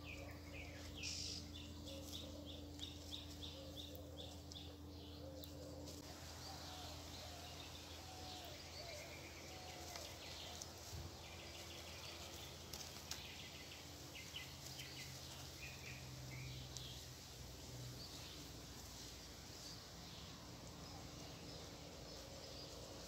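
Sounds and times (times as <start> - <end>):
distant birds chirping: 0.0 - 23.0
steady low hum: 0.0 - 23.0.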